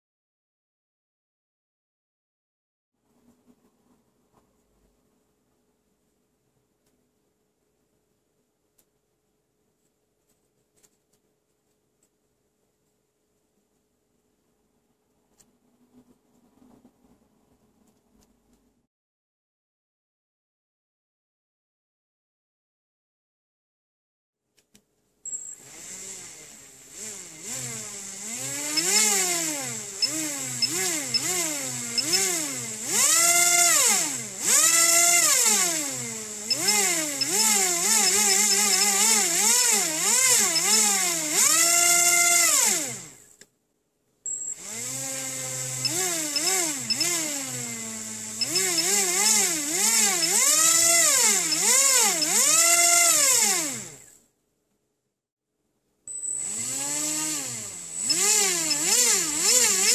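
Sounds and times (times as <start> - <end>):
small electric motor whining: 25.6 - 43.2, 44.6 - 54.1, 56.4 - 59.9.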